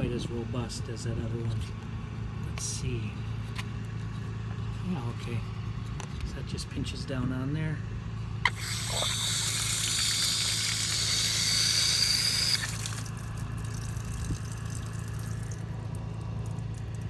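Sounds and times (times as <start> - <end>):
steady low hum: 0.0 - 17.0
water hissing through hose: 8.5 - 15.6.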